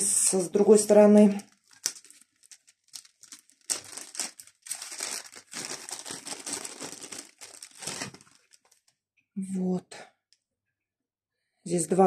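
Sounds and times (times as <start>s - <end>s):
plastic bags crinkling: 0.2s - 8.9s.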